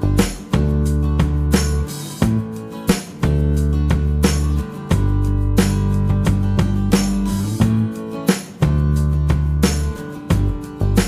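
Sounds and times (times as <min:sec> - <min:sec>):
plucked guitar notes: 0:00.0 - 0:11.0
sustained low bass notes: 0:03.3 - 0:07.9.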